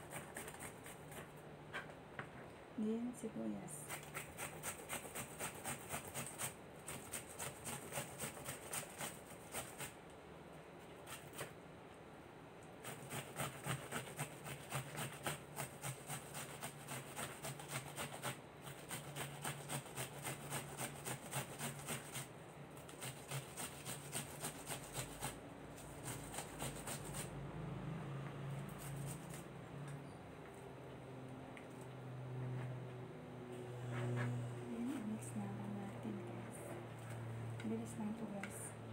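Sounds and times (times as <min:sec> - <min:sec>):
onion grated on metal grater: 0:03.8 - 0:10.0, 0:12.8 - 0:22.3, 0:22.9 - 0:27.3.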